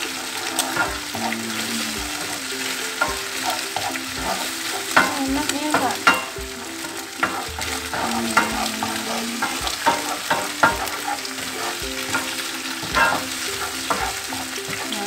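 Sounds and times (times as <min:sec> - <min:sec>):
oil sizzling in pan: 0:00.0 - 0:15.0
spatula scraping and knocking pan: 0:00.0 - 0:15.0.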